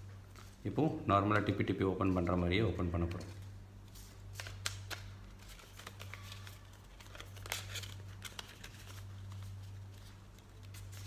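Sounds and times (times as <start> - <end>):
paper rustling and crackling: 3.0 - 11.0.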